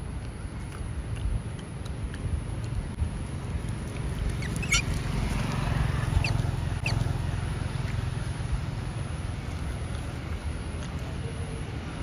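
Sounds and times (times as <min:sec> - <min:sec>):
wind rumbling on microphone: 0:00.0 - 0:12.0
small animal squeaking: 0:04.1 - 0:05.1, 0:06.0 - 0:07.2.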